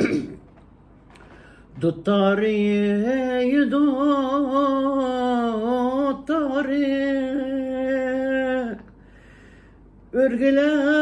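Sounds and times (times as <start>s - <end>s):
woman singing unaccompanied: 1.8s - 8.9s, 10.2s - 11.0s.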